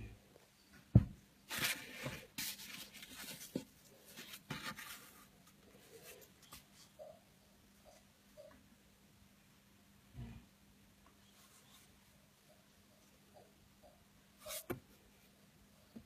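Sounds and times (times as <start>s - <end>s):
scratchy rustling and handling: 1.4s - 7.0s.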